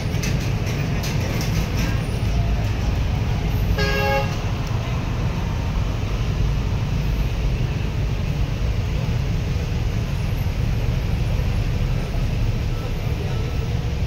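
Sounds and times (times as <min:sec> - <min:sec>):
heavy vehicle engines rumbling: 0:00.0 - 0:14.0
vehicle horn toot: 0:03.8 - 0:04.4.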